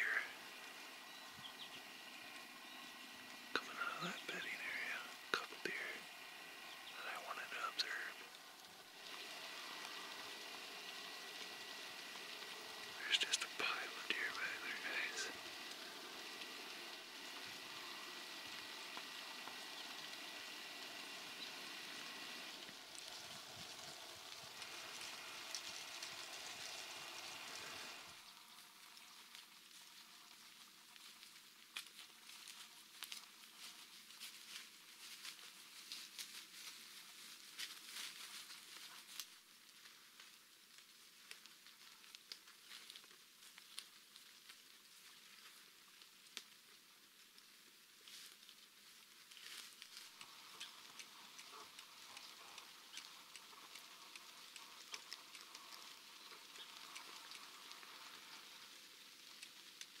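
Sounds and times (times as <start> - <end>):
light crackles: 0.0 - 60.0
quiet hiss: 0.0 - 60.0
soft ticks: 49.4 - 60.0.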